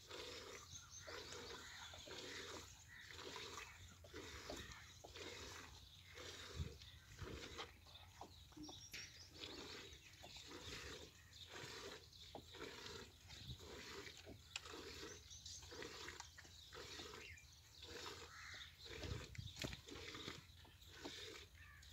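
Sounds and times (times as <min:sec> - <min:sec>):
calf sucking and swallowing: 0:00.0 - 0:21.9.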